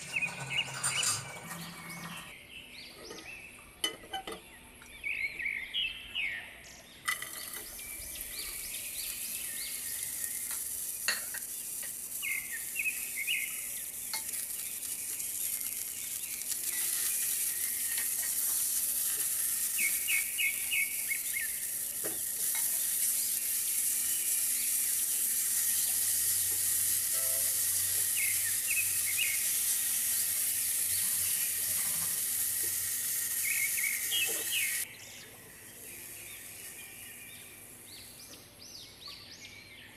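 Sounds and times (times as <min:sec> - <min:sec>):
vegetables sizzling in oil: 0:07.1 - 0:34.9, 0:35.5 - 0:38.1.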